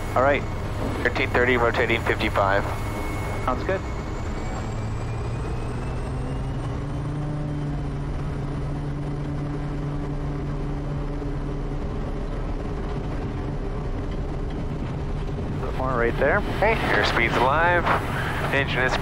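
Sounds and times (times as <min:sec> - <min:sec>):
high turbine whine: 0:00.0 - 0:19.0
turboprop plane engine drone: 0:00.0 - 0:19.0.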